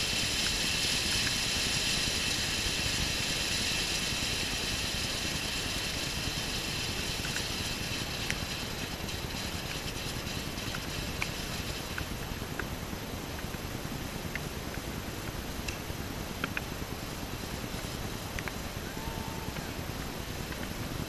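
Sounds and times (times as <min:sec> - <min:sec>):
firework fountain hissing: 0:00.0 - 0:21.0.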